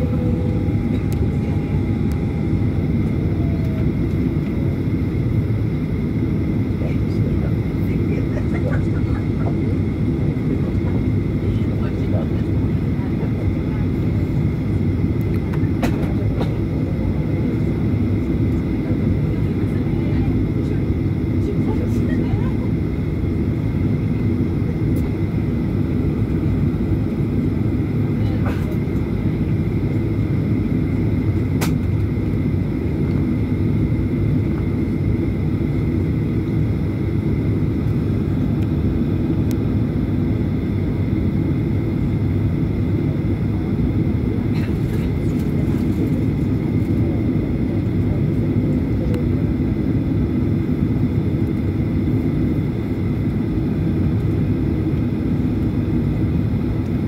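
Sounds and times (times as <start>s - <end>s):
jet engine low rumble: 0.0s - 57.0s
thin steady whine: 0.0s - 57.0s.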